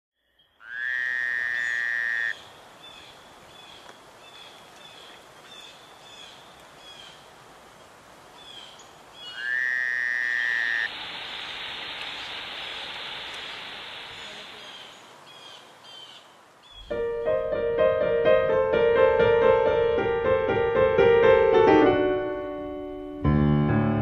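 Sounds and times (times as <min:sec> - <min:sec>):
frog trilling call: 0:00.6 - 0:03.0, 0:09.2 - 0:10.9
rush of falling water: 0:10.3 - 0:16.8.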